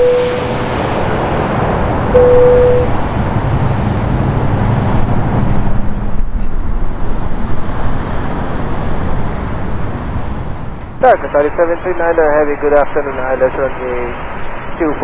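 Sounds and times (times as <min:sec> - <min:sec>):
short steady beep: 0:00.0 - 0:00.6, 0:02.2 - 0:02.9
low engine hum: 0:00.0 - 0:11.0
jet airliner rumbling: 0:00.0 - 0:15.0.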